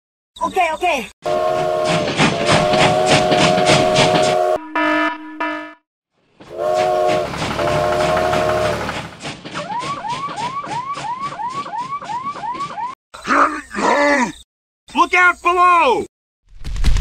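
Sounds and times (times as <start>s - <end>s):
steam train chuffing: 1.2s - 4.6s, 6.4s - 12.9s
steam train whistle: 1.2s - 5.1s, 6.5s - 12.7s.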